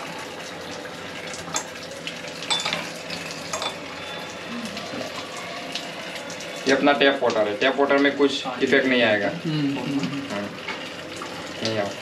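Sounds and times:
water running into a steel sink: 0.0 - 12.0
drinking glass clinking: 2.5 - 2.9, 3.5 - 3.8.

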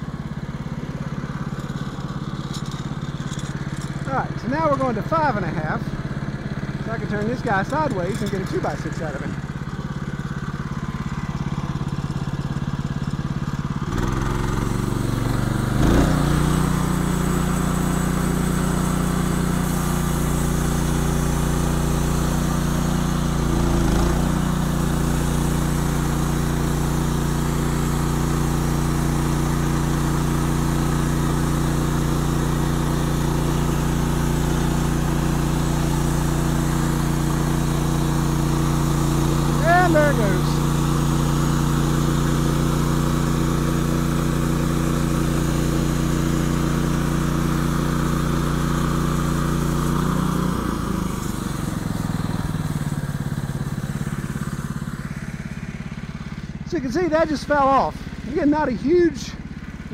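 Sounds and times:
sawmill engine running: 0.0 - 59.9
band saw cutting wood: 6.8 - 9.3, 13.9 - 54.0.

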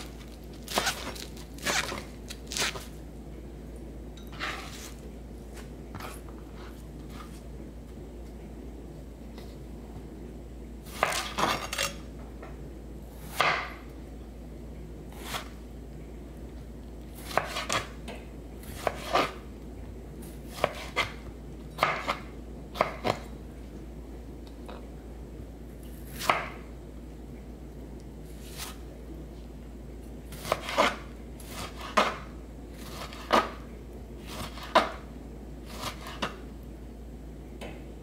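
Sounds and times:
knife slicing a tomato: 10.9 - 11.9, 15.1 - 15.6, 17.2 - 17.9, 18.6 - 19.4, 20.5 - 21.2, 26.0 - 26.6, 28.4 - 28.8, 30.3 - 33.6, 34.2 - 35.0, 35.6 - 36.4.

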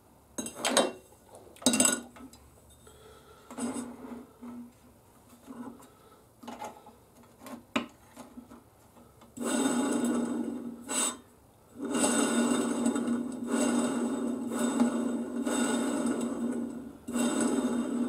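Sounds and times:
steel tube rolling whir on bearings: 9.4 - 18.0.

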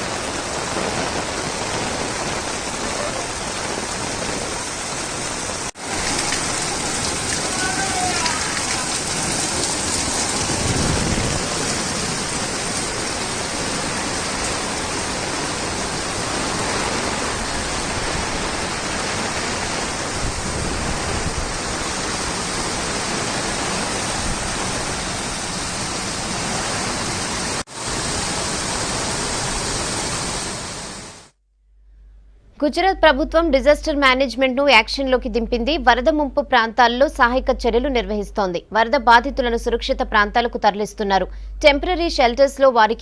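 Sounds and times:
rushing floodwater: 0.0 - 31.3
heavy rain: 0.0 - 31.4.

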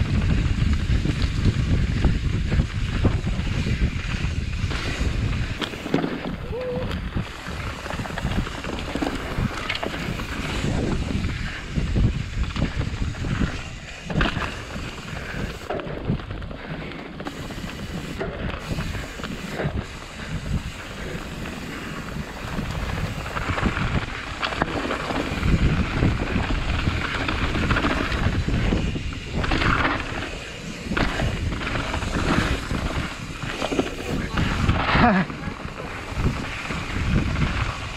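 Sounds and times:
bike knocks and rattles: 0.0 - 16.4, 17.2 - 37.9
tyres running on dirt: 0.0 - 37.9
wind rushing over microphone: 0.0 - 37.9.

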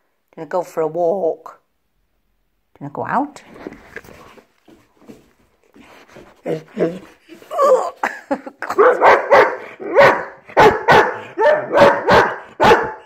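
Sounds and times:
dog barking: 8.7 - 13.0.

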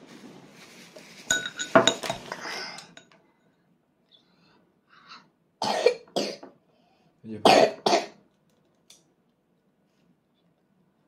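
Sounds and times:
person coughing: 5.6 - 6.5, 7.4 - 8.2.

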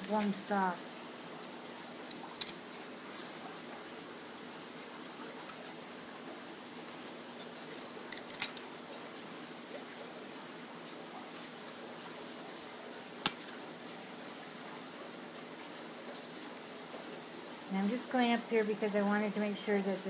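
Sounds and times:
coral cutters clicking: 2.0 - 2.6, 8.1 - 8.7
cutter blades snapping: 13.2 - 13.6.

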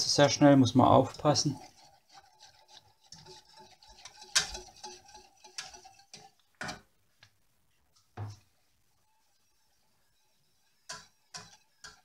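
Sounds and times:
wire whisk ticking against pan: 1.1 - 6.9, 9.5 - 12.0.

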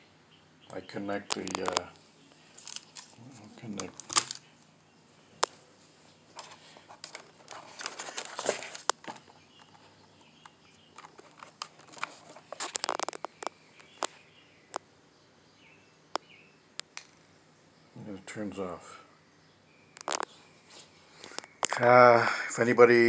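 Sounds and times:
handling rustling and knocks: 2.5 - 4.6, 5.4 - 14.1.

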